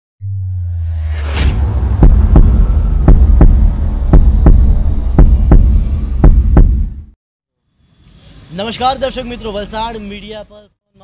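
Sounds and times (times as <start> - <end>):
brief whoosh: 0.2 - 6.2
low droning hum: 0.2 - 7.1
heartbeat double thump: 1.8 - 7.1.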